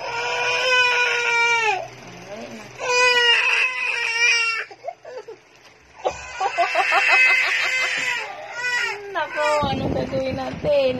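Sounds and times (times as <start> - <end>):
infant crying: 0.0 - 1.9, 2.8 - 4.8, 6.0 - 9.7.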